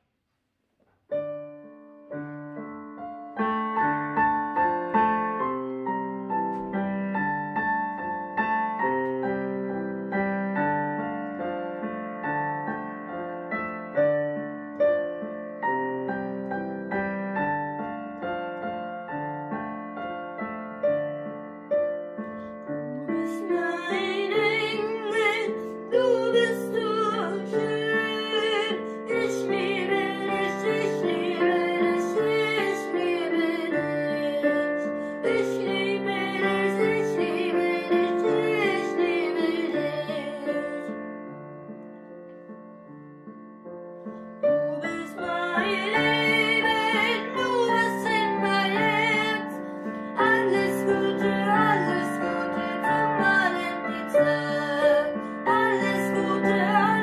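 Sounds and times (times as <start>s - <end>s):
gentle piano melody: 1.1s - 57.0s
person singing: 22.8s - 41.0s, 44.7s - 57.0s.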